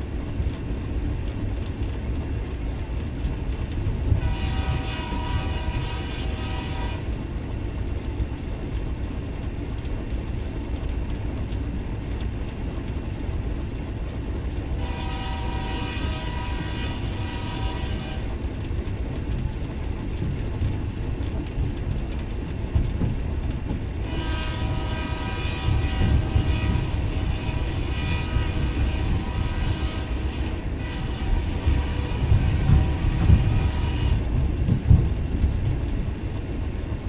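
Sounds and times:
diesel locomotive rumbling: 0.0s - 37.0s
locomotive horn blasts: 4.2s - 7.1s, 14.8s - 18.3s, 24.0s - 34.3s.

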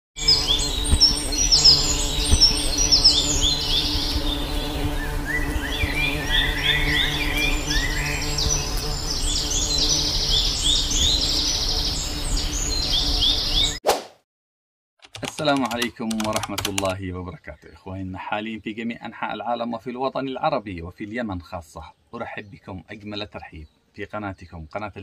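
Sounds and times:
high bird chirps: 0.2s - 13.8s
honeybees buzzing: 0.2s - 13.8s.

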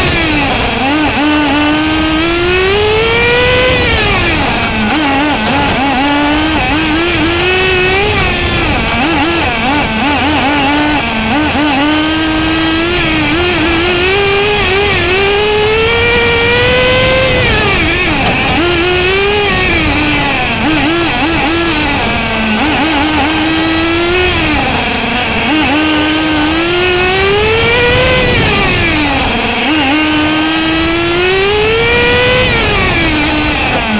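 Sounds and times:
rc car engine revving: 0.0s - 33.9s.

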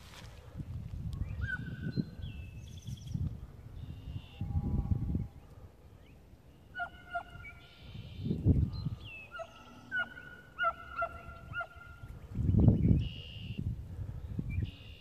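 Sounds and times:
rustling in brush: 0.0s - 0.5s
distant dogs baying: 9.3s - 12.0s.

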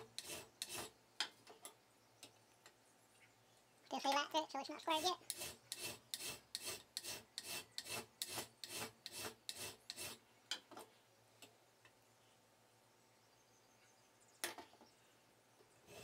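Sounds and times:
hand file rasping on metal: 0.0s - 1.0s, 4.9s - 10.2s.

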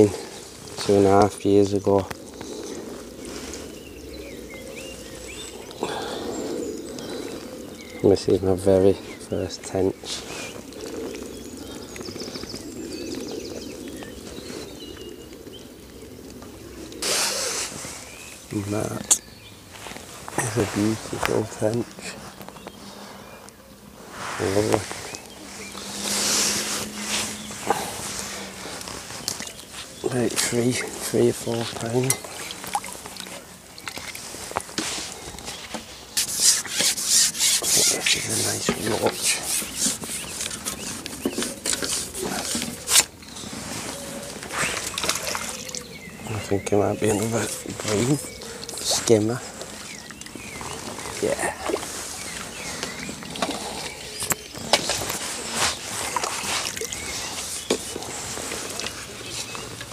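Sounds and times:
small birds chirping: 0.0s - 59.9s
fishing pole sections scraping: 24.0s - 45.6s, 47.1s - 59.9s.

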